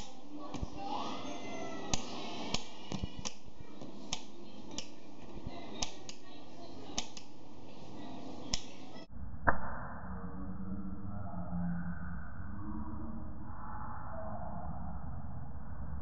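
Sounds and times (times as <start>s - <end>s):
light switch clicking: 1.9s - 3.4s, 4.1s - 5.0s, 5.8s - 6.2s, 7.0s - 7.3s.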